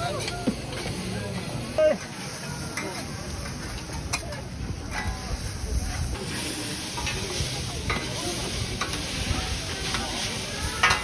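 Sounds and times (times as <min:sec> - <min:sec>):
noodles sizzling on griddle: 0:00.0 - 0:11.0
metal spatulas scraping and clacking: 0:06.2 - 0:11.0.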